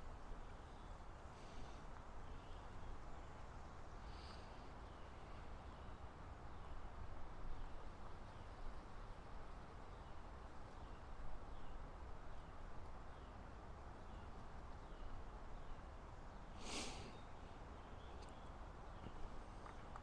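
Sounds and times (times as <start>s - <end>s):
short hiss: 16.6s - 17.2s
faint bird chirps: 16.6s - 19.3s.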